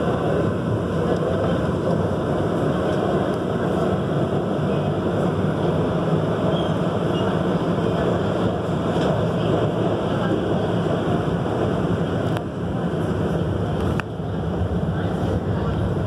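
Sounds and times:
train rumbling through tunnel: 0.0 - 16.0.

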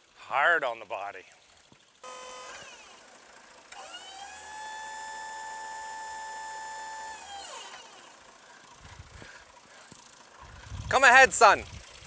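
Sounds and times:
hydraulic pump whining: 2.0 - 10.0.

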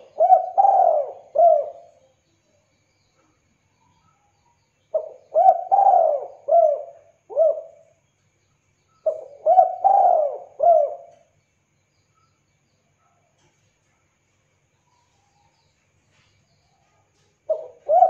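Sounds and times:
dove cooing: 0.0 - 2.0, 4.9 - 7.9, 9.0 - 11.2, 17.5 - 18.0.

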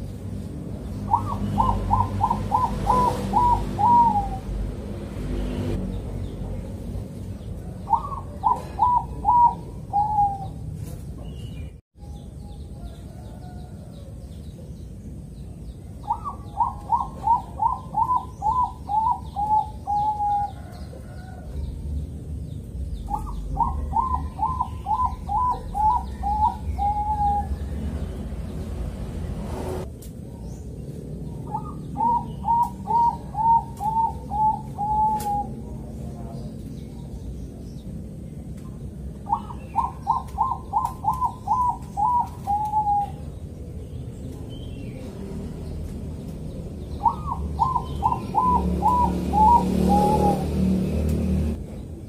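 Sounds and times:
dove cooing: 1.0 - 4.6, 7.6 - 10.8, 16.0 - 21.8, 23.1 - 28.0, 31.4 - 36.2, 39.2 - 43.6, 46.9 - 51.6.

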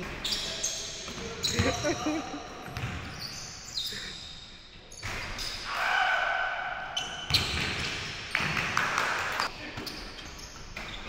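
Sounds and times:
sneakers squeaking: 0.0 - 5.8, 6.8 - 8.6, 9.4 - 11.0
basketball bouncing: 2.6 - 3.1.

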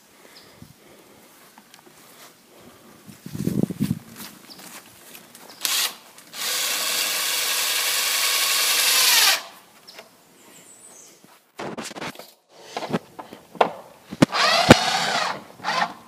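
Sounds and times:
cordless drill driving a screw: 5.6 - 9.5, 14.2 - 16.0.

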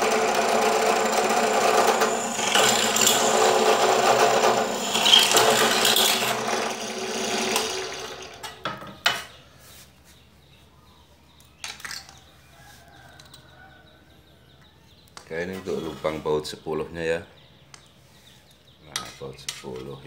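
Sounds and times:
drill motor winding down: 0.0 - 8.6
drill press drilling aluminium: 0.0 - 8.6.

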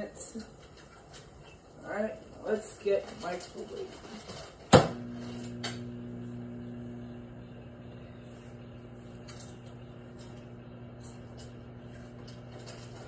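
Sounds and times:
microwave oven humming: 4.6 - 13.0
microwave oven click: 4.8 - 13.0.

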